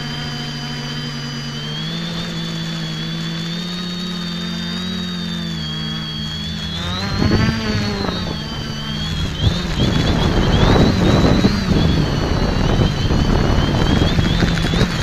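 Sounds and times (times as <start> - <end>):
quadcopter propellers buzzing: 0.0 - 15.0
wind noise on microphone: 6.1 - 15.0.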